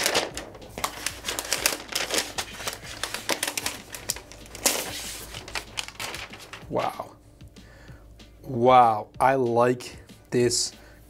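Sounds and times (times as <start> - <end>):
paper wrap crinkling and crackling: 0.0 - 7.1.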